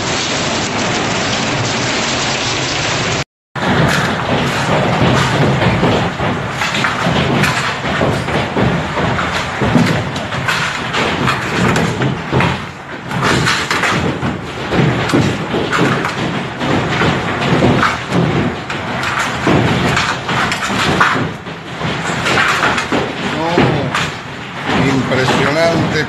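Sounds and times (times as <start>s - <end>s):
heavy rain: 0.0s - 16.3s
hailstones pelting hard surfaces: 0.0s - 26.0s.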